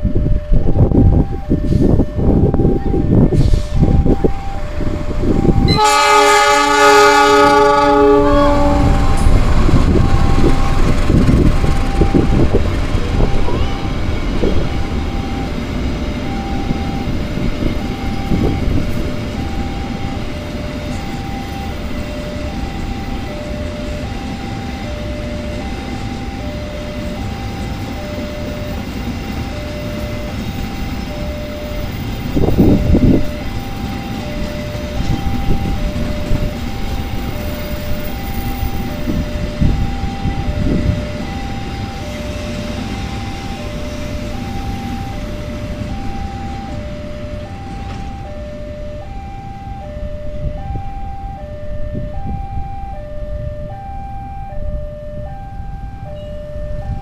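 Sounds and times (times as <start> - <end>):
train wagons rumbling over rails: 0.0 - 57.0
level crossing alarm chimes: 0.2 - 6.0, 13.2 - 57.0
locomotive horn blast: 5.5 - 9.4.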